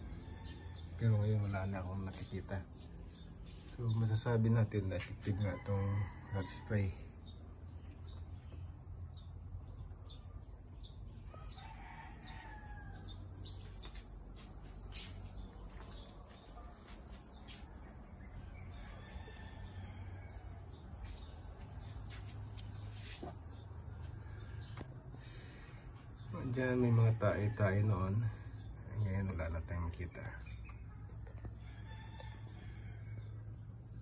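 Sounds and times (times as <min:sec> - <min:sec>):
rooster crowing faintly: 0:11.2 - 0:13.9, 0:18.3 - 0:22.3.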